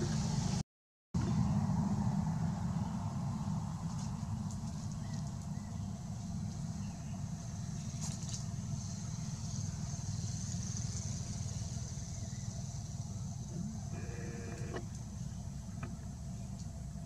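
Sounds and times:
low background rumble: 0:01.2 - 0:17.0
thin high buzz: 0:13.5 - 0:14.9.

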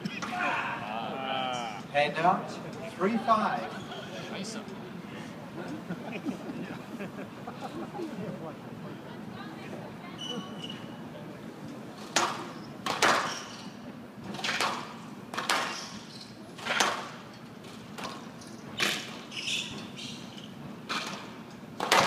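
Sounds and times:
squash ball hits: 0:12.1 - 0:13.5, 0:14.4 - 0:16.0, 0:21.8 - 0:22.0.

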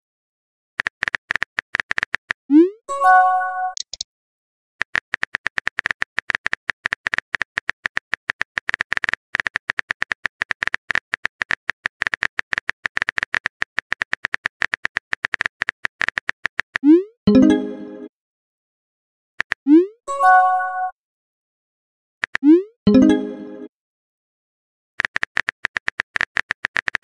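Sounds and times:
phone keyboard typing clicks: 0:00.8 - 0:02.4, 0:03.7 - 0:04.0, 0:04.8 - 0:16.8, 0:25.0 - 0:27.0
message chime: 0:02.9 - 0:03.8, 0:17.3 - 0:18.1, 0:20.1 - 0:20.9, 0:22.9 - 0:23.7.

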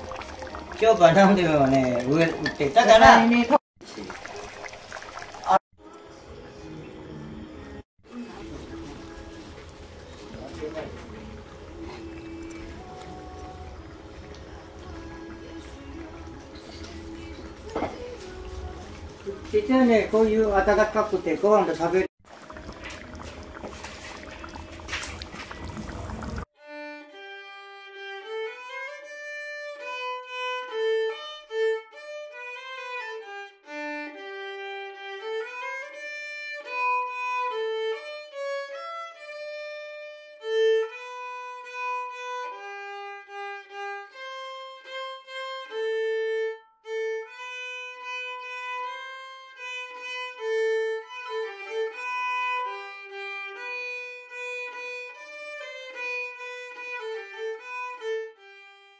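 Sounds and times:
solo violin melody: 0:26.6 - 0:58.9.

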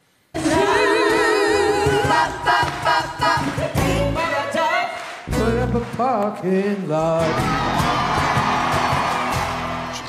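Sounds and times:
woman singing with vibrato: 0:00.4 - 0:05.1
voices singing along: 0:00.4 - 0:09.5.

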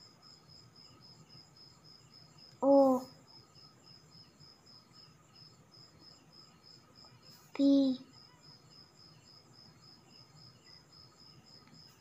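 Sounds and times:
cricket chirping: 0:00.0 - 0:12.0
person saying a letter: 0:02.6 - 0:03.1, 0:07.5 - 0:08.0.

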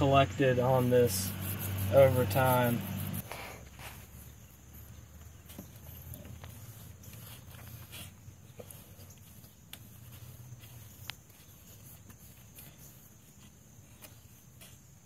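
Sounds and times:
cloth towel rubbing metal: 0:00.7 - 0:03.2.

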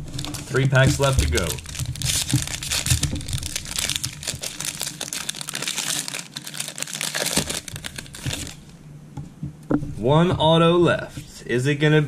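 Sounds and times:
plastic wrapper crinkling: 0:00.0 - 0:08.7.

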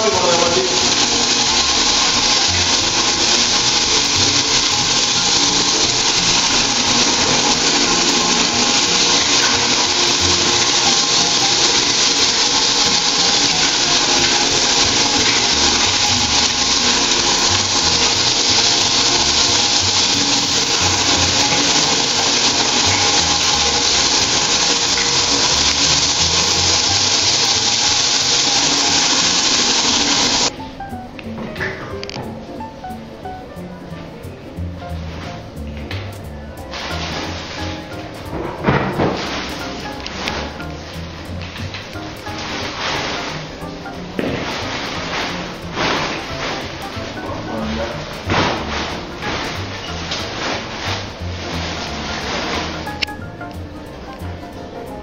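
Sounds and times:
polishing pad grinding stone: 0:00.0 - 0:30.6
floor machine motor hum: 0:00.0 - 0:30.8, 0:33.7 - 0:55.0.

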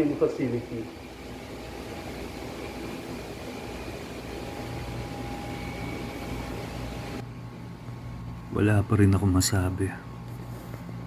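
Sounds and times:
air conditioner humming: 0:00.0 - 0:11.0
faint thin whine: 0:00.0 - 0:11.0.

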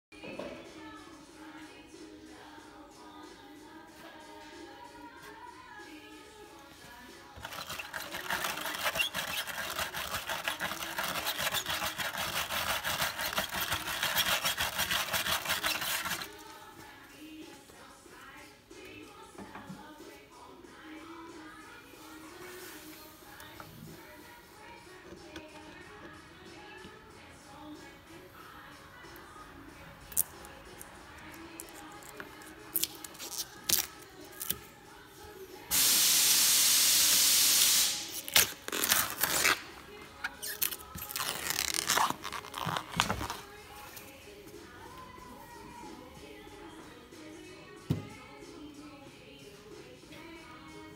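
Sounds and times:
wire brush scrubbing metal panel: 0:07.4 - 0:16.3
fingernail scratching film: 0:07.4 - 0:16.5
film tearing hiss: 0:35.7 - 0:39.6.

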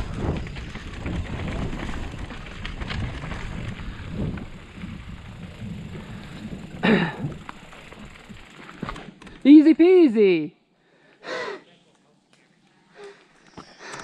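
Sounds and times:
wind buffeting microphone: 0:00.0 - 0:07.5
bike tyres rumbling over stones: 0:00.0 - 0:09.4.

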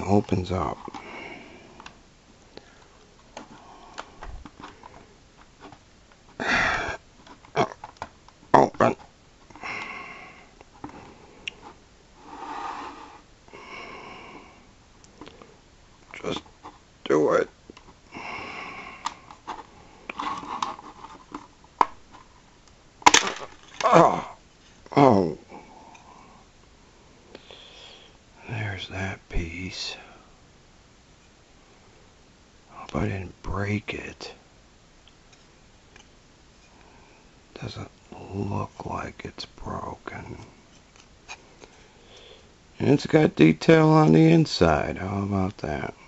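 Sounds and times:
hard plastic clicking and scraping: 0:02.6 - 0:06.3, 0:19.0 - 0:22.4
loud sharp plastic snap: 0:23.0 - 0:23.8
person sniffing: 0:27.4 - 0:28.2.

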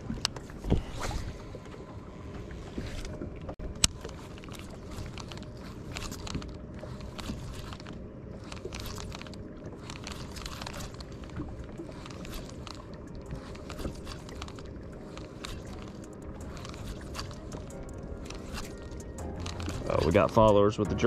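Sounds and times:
fishing reel whirring: 0:03.8 - 0:20.6.

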